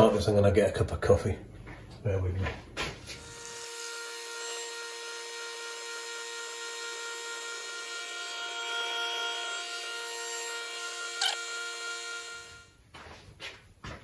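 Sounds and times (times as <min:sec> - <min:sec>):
coffee machine motor hum: 0:03.2 - 0:12.8.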